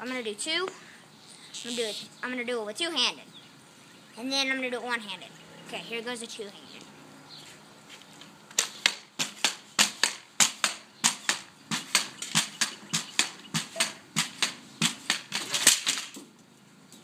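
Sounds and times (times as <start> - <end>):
pogo stick clacking on concrete: 8.5 - 16.2.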